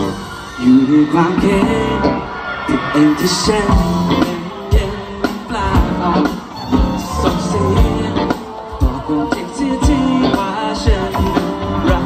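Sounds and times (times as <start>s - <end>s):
guitar: 0.0s - 12.0s
man singing into microphone: 0.0s - 12.0s
steady drum beat: 3.5s - 12.0s.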